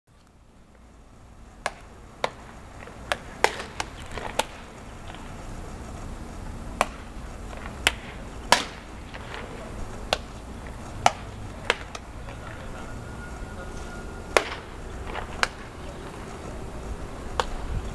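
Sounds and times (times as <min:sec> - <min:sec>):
low outdoor background: 0:00.1 - 0:17.9
baseballs smacking into gloves: 0:01.6 - 0:05.3, 0:06.7 - 0:12.6, 0:14.3 - 0:16.3, 0:17.2 - 0:17.9.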